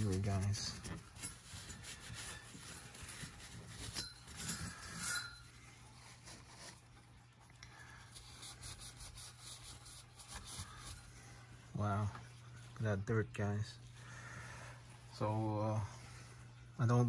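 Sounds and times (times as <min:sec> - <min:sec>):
paper towel scuffing metal: 0:00.0 - 0:06.9.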